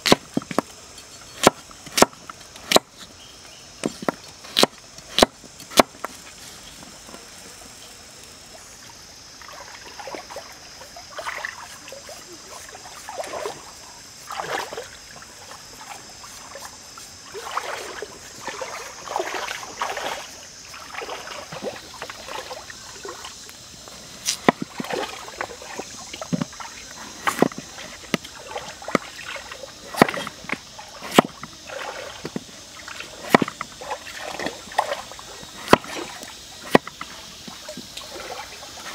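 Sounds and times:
knife chopping on wooden board: 0.0s - 0.7s, 1.4s - 2.9s, 3.8s - 6.0s, 30.0s - 30.3s, 31.1s - 31.4s, 33.3s - 33.6s
stream trickling: 0.0s - 38.9s.

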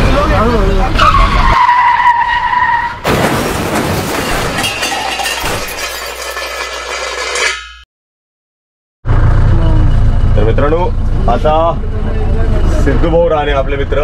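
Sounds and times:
car crash: 2.3s - 7.8s
glass shattering and jingling: 3.1s - 7.8s.

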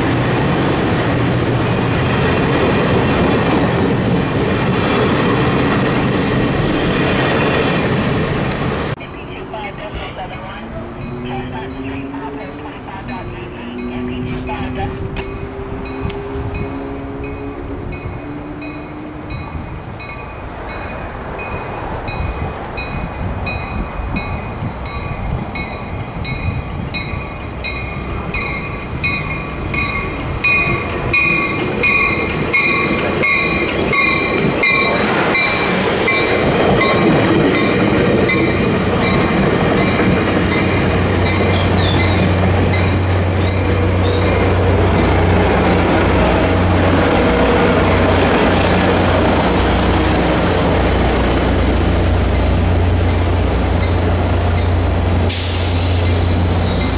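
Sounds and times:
diesel locomotive drone: 0.0s - 56.9s
wheels rushing on rail: 0.0s - 56.9s
high wheel squeal: 0.6s - 2.1s, 8.6s - 9.0s, 31.2s - 51.6s
train bell ringing: 10.1s - 49.4s, 56.0s - 56.9s.

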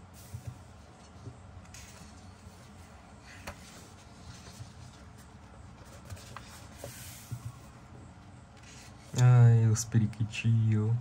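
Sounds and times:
book pages turning: 1.0s - 7.8s.

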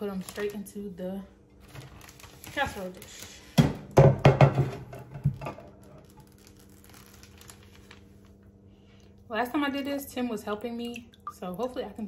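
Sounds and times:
plastic bag crinkling: 0.0s - 0.7s, 1.6s - 3.5s, 5.7s - 8.5s
low steady hum: 0.0s - 12.0s.

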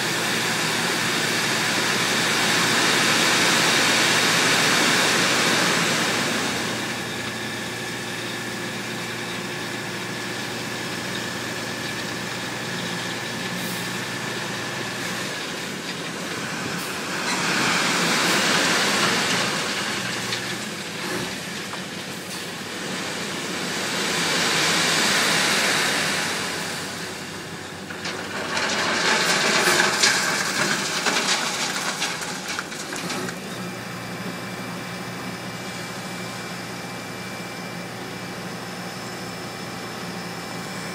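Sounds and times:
gravel sliding out rumbling: 23.9s - 34.3s.

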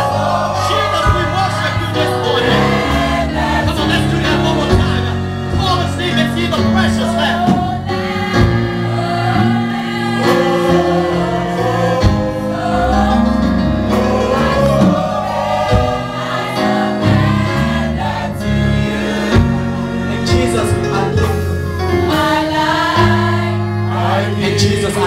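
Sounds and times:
mixed choir singing gospel: 0.0s - 25.0s
man leading on microphone: 0.6s - 2.8s, 3.6s - 7.7s, 20.2s - 21.5s.

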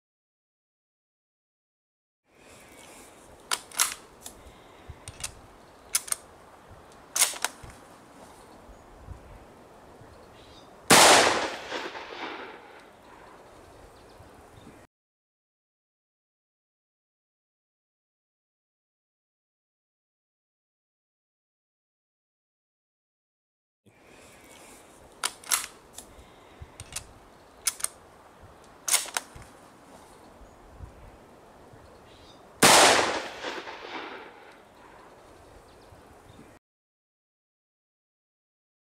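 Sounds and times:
rifle bolt action clicks: 3.5s - 4.4s, 5.0s - 6.2s, 6.9s - 7.8s, 25.2s - 26.1s, 26.8s - 28.0s, 28.6s - 29.5s.

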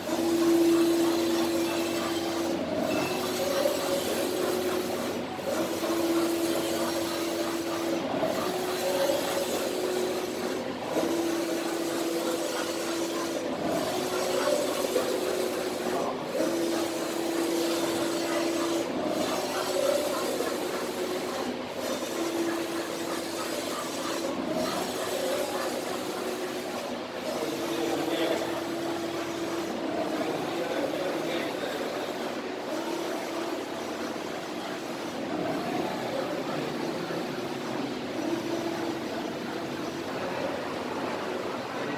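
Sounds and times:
printer carriage motor hum: 0.0s - 41.9s.

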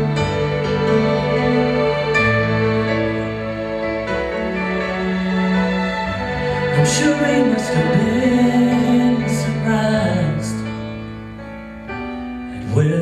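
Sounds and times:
instrumental backing music: 0.0s - 13.0s
man singing a slow ballad: 6.7s - 10.9s, 12.5s - 13.0s.

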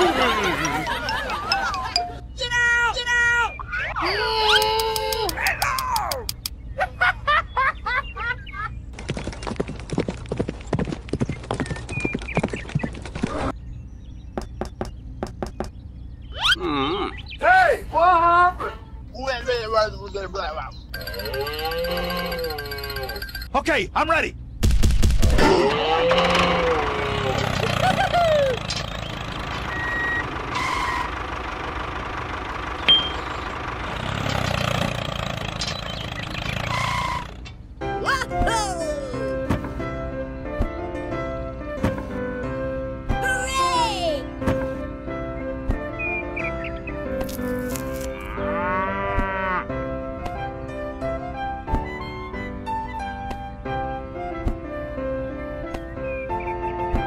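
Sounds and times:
tractor engine idling: 0.0s - 2.3s, 20.8s - 23.5s, 26.1s - 37.8s
cartoon hoofbeats clip-clop: 9.0s - 13.4s, 21.0s - 23.5s
reversing beep: 29.6s - 31.0s, 32.8s - 33.3s.

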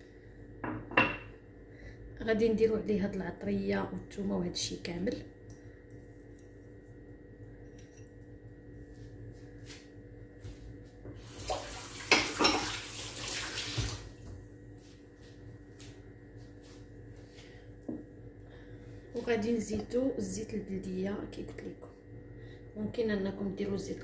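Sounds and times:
kitchen tap running into sink: 11.2s - 14.2s.

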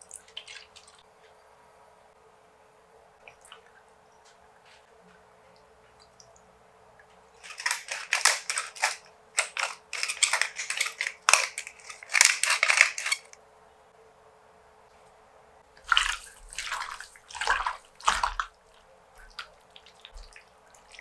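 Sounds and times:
pepper mill grinding: 7.4s - 13.4s.

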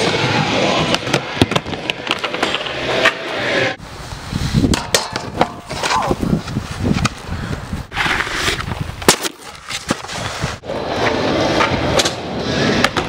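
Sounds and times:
snowboard scraping on snow: 7.9s - 8.9s
skateboard rolling on wooden ramp: 7.9s - 13.0s.

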